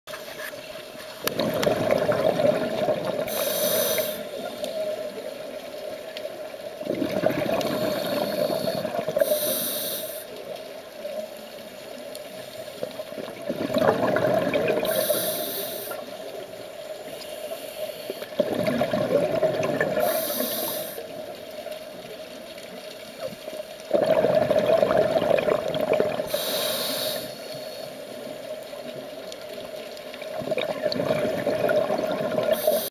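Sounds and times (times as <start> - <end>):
exhaled bubbles rushing: 1.2 - 3.5, 6.8 - 9.3, 13.1 - 15.2, 18.3 - 20.4, 23.9 - 26.4, 30.2 - 32.9
air hissing through regulator: 3.3 - 4.7, 7.6 - 10.3, 14.9 - 16.1, 20.0 - 21.1, 26.3 - 28.0.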